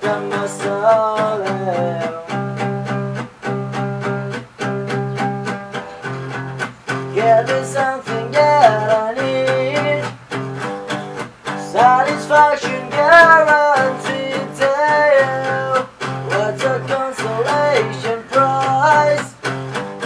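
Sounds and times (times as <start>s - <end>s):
person singing: 0.0s - 3.2s, 6.9s - 10.2s, 11.5s - 20.0s
acoustic guitar strumming: 0.0s - 20.0s.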